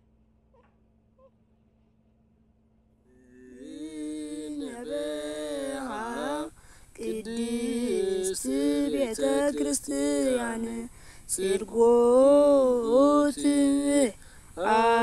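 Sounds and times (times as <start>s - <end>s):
person chanting a hymn: 3.2s - 15.0s.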